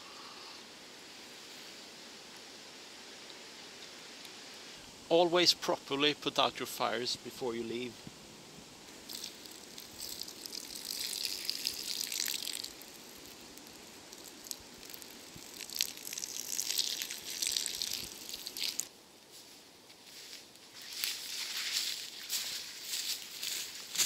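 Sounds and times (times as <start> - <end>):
water splashing on ashes: 9.0 - 18.9.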